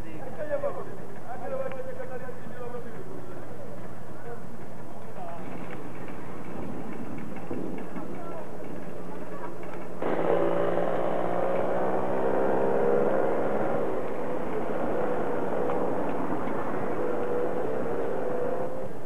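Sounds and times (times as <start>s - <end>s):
motor engine droning: 10.0s - 19.0s.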